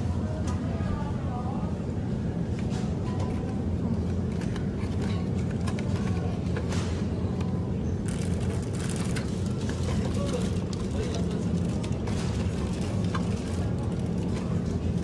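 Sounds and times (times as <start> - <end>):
low supermarket hum: 0.0 - 15.0
plastic wrap rustling: 8.0 - 15.0.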